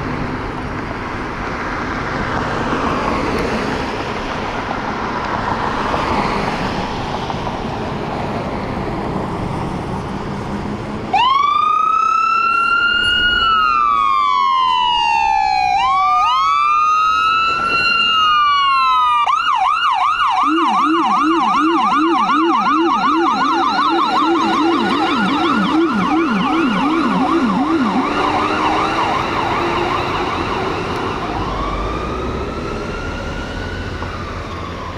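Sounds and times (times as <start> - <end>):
vehicle engine: 0.0 - 34.9
ambulance siren wailing and yelping: 11.1 - 34.9
low-pitched siren yelp: 11.1 - 34.9.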